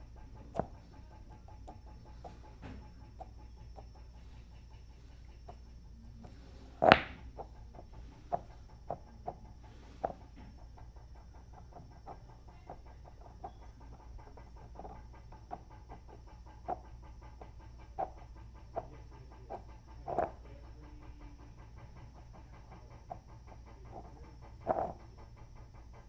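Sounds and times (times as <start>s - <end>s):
faint motor ticks: 0.0s - 26.0s
stone clacking against stones: 6.7s - 7.5s, 20.1s - 20.4s.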